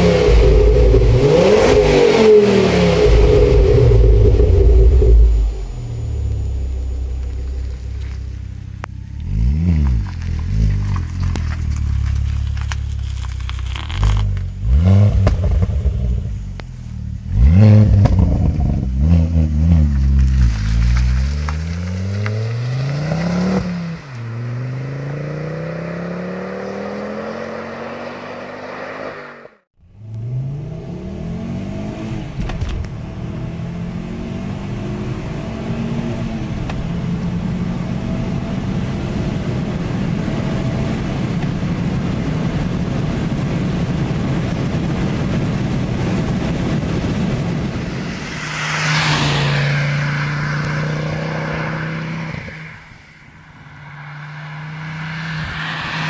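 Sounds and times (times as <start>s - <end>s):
car engine accelerating hard: 0.0s - 56.0s
car passing close by: 46.9s - 56.0s.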